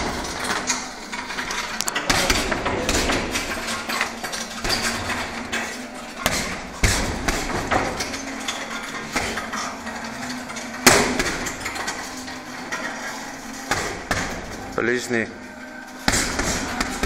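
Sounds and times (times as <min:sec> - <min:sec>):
punches on heavy bag: 0:06.2 - 0:08.0, 0:16.0 - 0:17.0.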